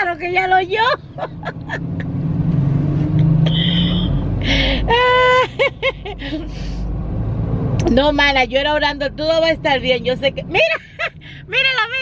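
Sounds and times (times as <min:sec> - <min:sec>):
car rumble: 0:00.0 - 0:12.0.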